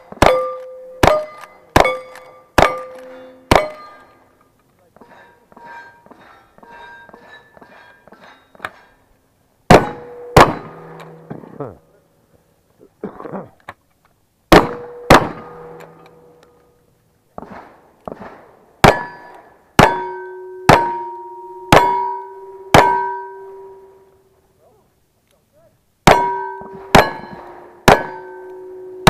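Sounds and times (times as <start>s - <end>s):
steel plates ringing: 0.0s - 4.4s, 5.0s - 11.5s, 18.8s - 24.3s, 26.1s - 29.0s
shotgun shots: 9.7s - 11.5s, 14.5s - 15.9s, 17.4s - 20.1s, 26.1s - 28.2s.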